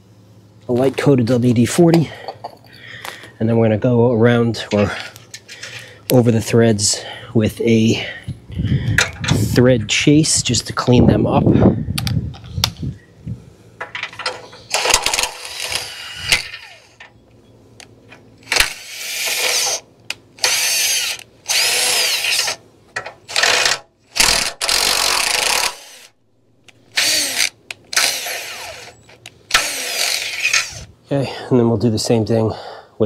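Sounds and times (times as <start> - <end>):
cordless drill spinning: 14.7 - 17.0, 18.4 - 19.8, 20.4 - 22.6, 23.3 - 26.1, 26.9 - 30.9.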